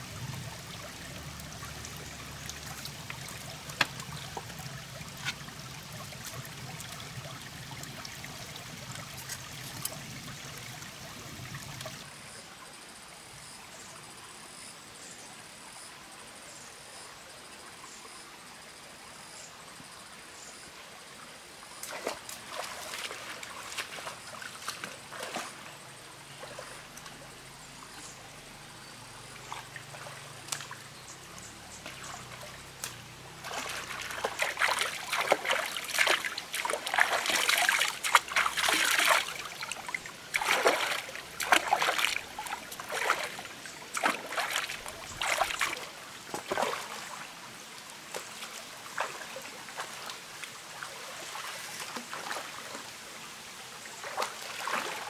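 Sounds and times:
stream trickling: 0.0 - 16.2, 16.9 - 55.0
hands splashing water: 31.8 - 47.0.

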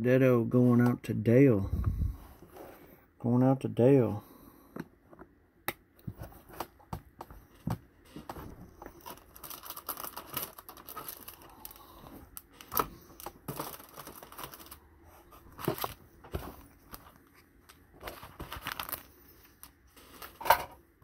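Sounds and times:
plastic crinkling and rustling: 7.5 - 20.7.

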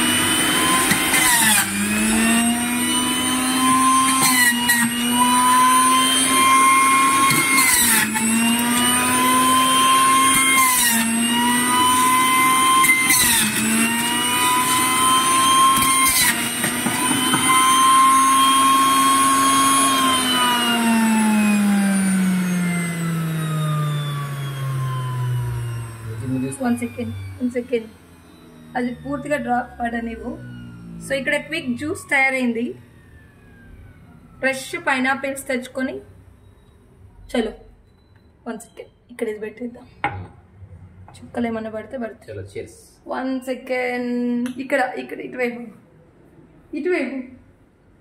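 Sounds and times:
juice extractor motor whining: 0.0 - 36.8.

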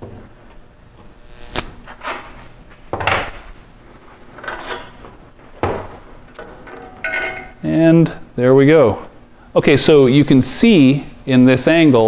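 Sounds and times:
metal clunk: 5.6 - 7.6.

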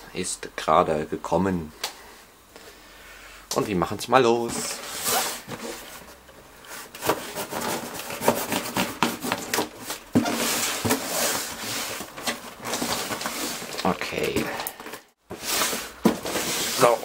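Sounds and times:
cardboard scraping on wood floor: 4.5 - 6.1, 6.7 - 14.2, 15.3 - 17.0.

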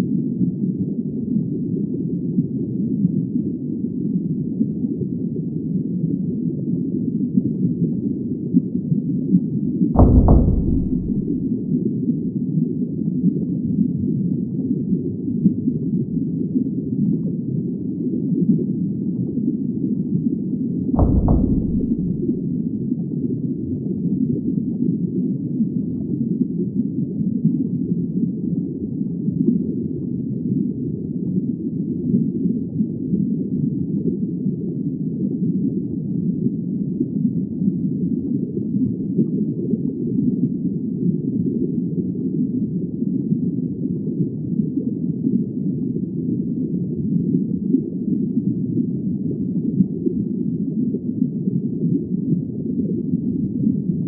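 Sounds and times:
muffled underwater rumble: 10.0 - 11.7, 21.0 - 22.8.

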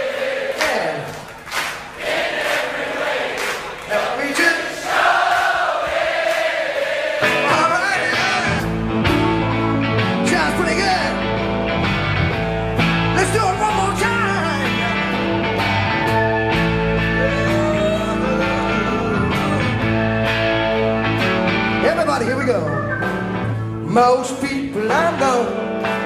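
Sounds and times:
bass guitar: 7.2 - 26.0
electric guitars: 7.2 - 26.0
person singing: 17.0 - 20.0.

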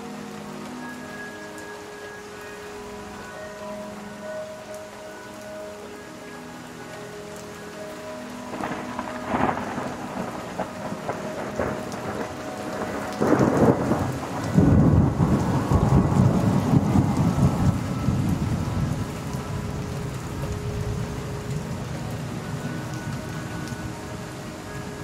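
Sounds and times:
steady rain: 0.0 - 25.0
thunder rumbling: 8.4 - 25.0
thunderclap: 8.5 - 18.7.

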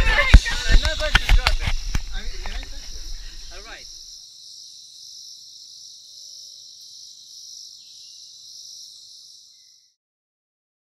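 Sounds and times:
voices: 0.0 - 4.0
night insects chorus: 0.0 - 10.0.

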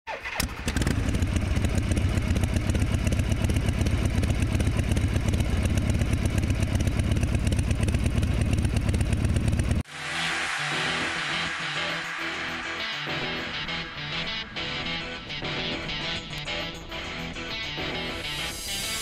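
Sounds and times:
motorcycle engine idling: 0.9 - 9.8.

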